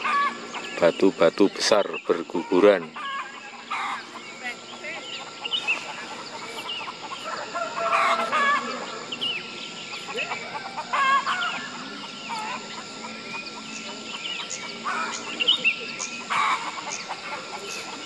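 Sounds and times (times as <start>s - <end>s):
birds calling: 0.0s - 18.0s.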